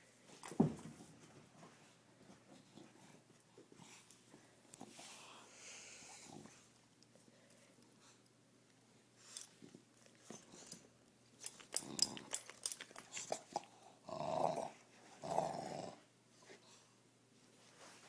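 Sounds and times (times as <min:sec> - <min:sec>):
dog play growls: 0:13.2 - 0:16.1.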